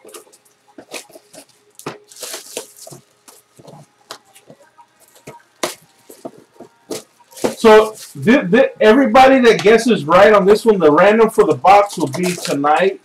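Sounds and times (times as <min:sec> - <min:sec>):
plastic wrap crinkling and tearing: 0:00.0 - 0:08.4, 0:11.5 - 0:13.0.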